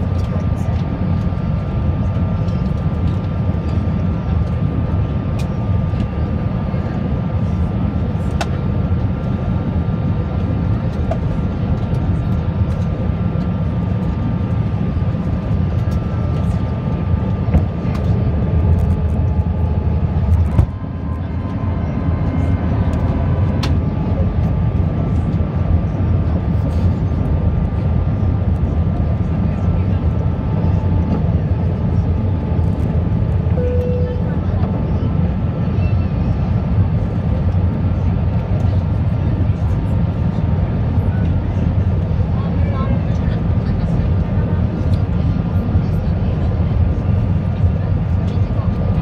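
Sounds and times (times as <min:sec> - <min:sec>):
airplane cabin engine roar: 0:00.0 - 0:49.0
thin steady whine: 0:31.2 - 0:41.8.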